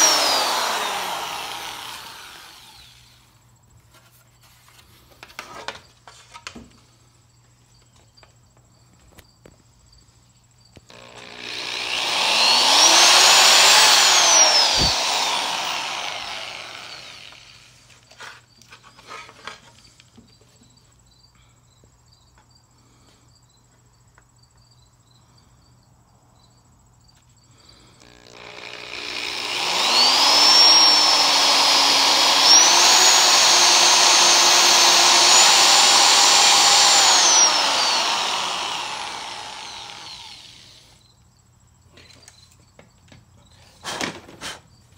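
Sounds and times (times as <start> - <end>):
electric drill whining: 0.0 - 3.2, 10.9 - 18.0, 28.0 - 41.0.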